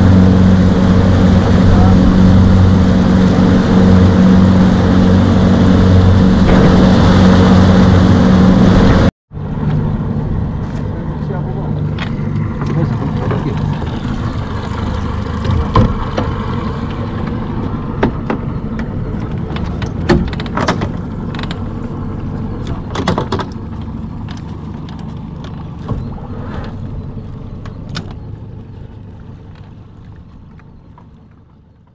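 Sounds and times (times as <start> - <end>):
small boat motor humming: 0.0 - 31.9
knocks and clicks of gear: 11.8 - 31.9.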